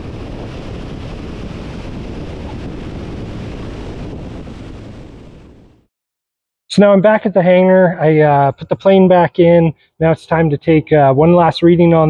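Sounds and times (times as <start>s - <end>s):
wind rushing over microphone: 0.0s - 5.9s.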